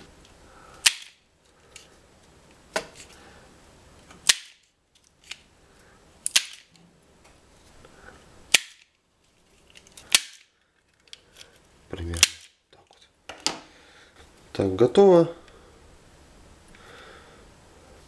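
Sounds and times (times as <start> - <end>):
wire stripper snapping: 0.8 - 1.2, 4.2 - 5.4, 6.2 - 6.7, 8.5 - 8.9, 10.0 - 10.5.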